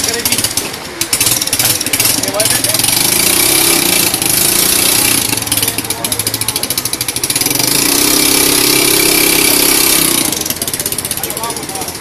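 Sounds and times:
small scooter engine revving: 0.0 - 12.0.

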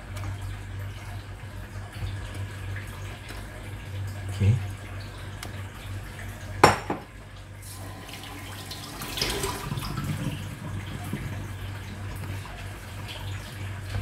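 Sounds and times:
pot and utensils clattering: 6.6 - 7.1.

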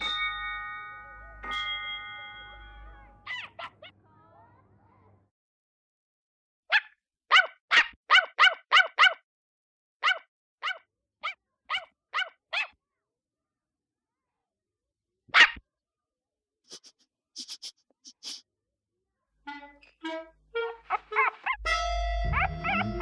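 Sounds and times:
puppy yapping: 3.3 - 4.0, 6.7 - 9.2, 10.0 - 12.8, 15.3 - 15.6, 20.9 - 23.0.

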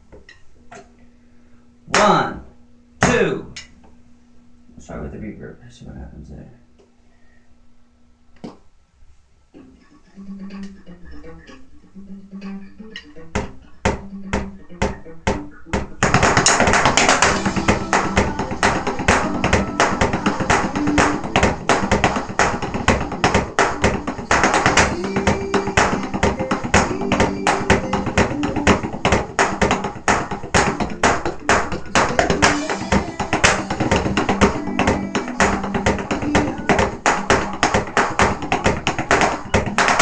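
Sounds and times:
drumsticks hitting electronic drum pads: 1.9 - 2.4, 3.0 - 3.8, 13.0 - 40.0
music playing: 9.9 - 40.0.

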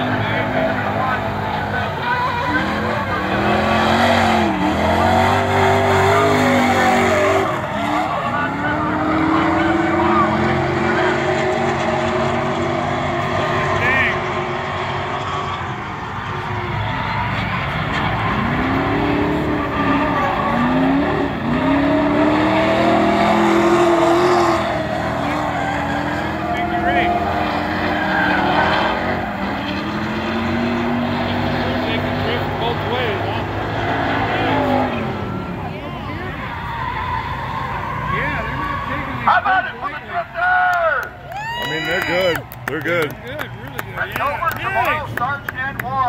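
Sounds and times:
car engines at high revs: 0.0 - 46.0
tyres skidding: 0.0 - 46.0
tyres squealing: 17.0 - 39.3.

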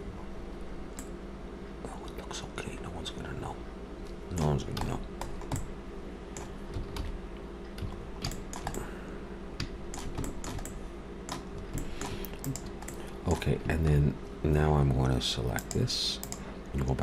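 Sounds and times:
low steady hum: 0.0 - 17.0
keyboard keys clicking: 4.4 - 5.7, 6.4 - 8.8.

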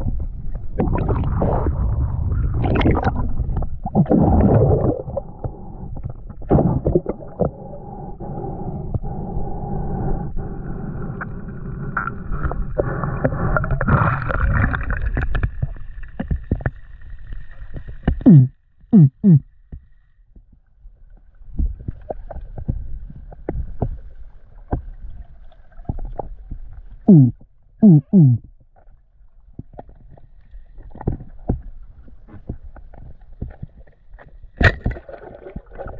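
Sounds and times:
muffled underwater rumble and gurgling: 0.0 - 35.9
clicks underwater: 2.6 - 7.6, 13.2 - 16.9, 29.5 - 35.9
loud bloops dropping in pitch: 18.2 - 19.4, 27.1 - 28.4.

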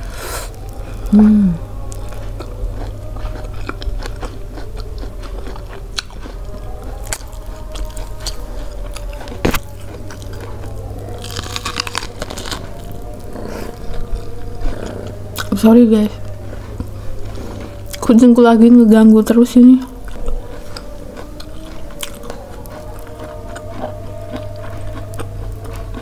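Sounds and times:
chewing corn on the cob: 0.0 - 26.0
crisp tearing bite: 1.8 - 15.6.

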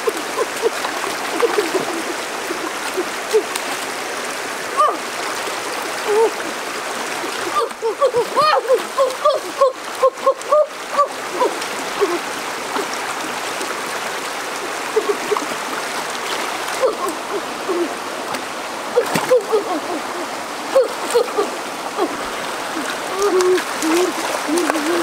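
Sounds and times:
faint voice-like calls: 0.0 - 3.8, 4.6 - 5.2, 6.0 - 6.6, 7.4 - 13.4, 16.6 - 18.1, 18.9 - 25.0
stream rushing over stones: 0.0 - 25.0.

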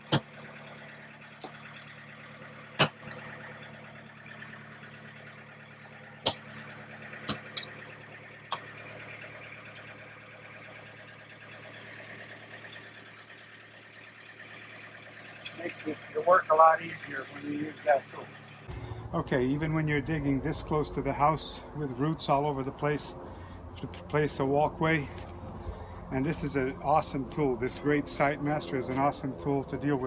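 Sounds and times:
tool chopping into soil and root: 0.0 - 0.4, 2.8 - 3.2, 6.2 - 6.6, 7.2 - 7.5
engine idling hum: 0.0 - 30.0.

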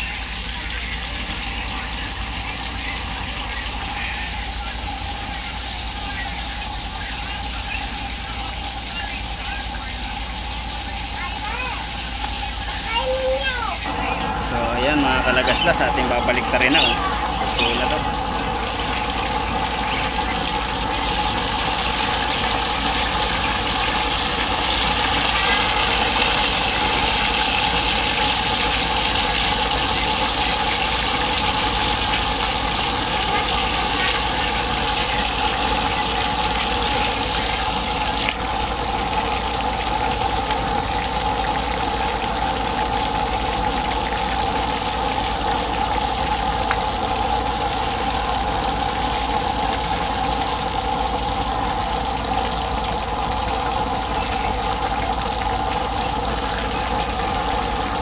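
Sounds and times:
fish frying in hot oil: 0.0 - 58.0.

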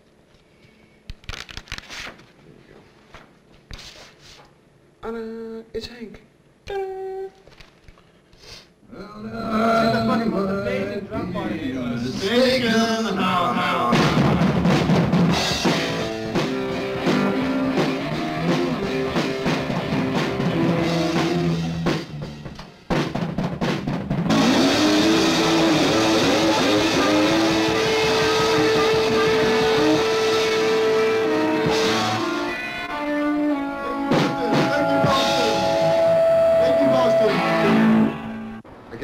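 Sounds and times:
rock band playing: 13.8 - 38.6.

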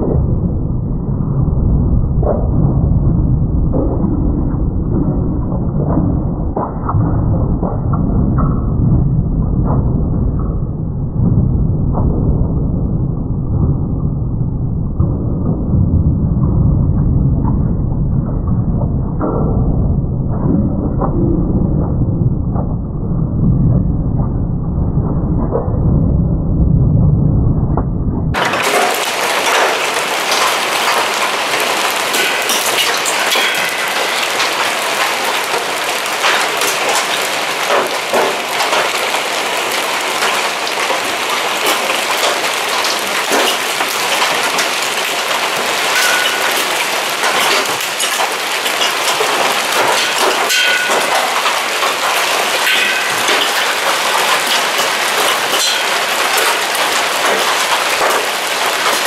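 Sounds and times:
low muffled rumble: 0.0 - 28.4
hailstones pelting down: 28.4 - 59.0.

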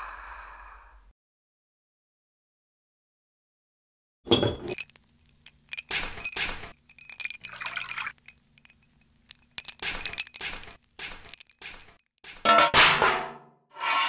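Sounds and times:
glass and metal clinking: 4.3 - 11.7.

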